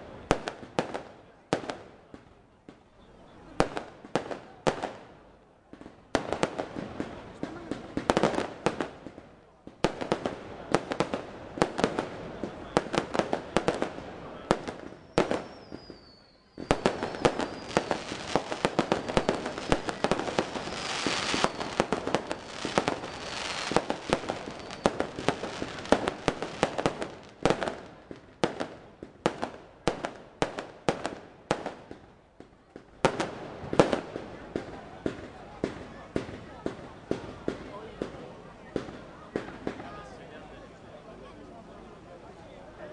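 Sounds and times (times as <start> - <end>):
fireworks bangs and crackling: 0.0 - 40.2
faint falling whistle: 15.4 - 17.7.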